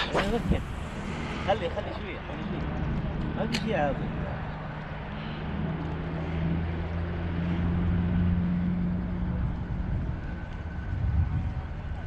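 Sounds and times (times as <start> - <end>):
wind hiss: 0.0 - 2.2
passing engine humming: 0.0 - 12.0.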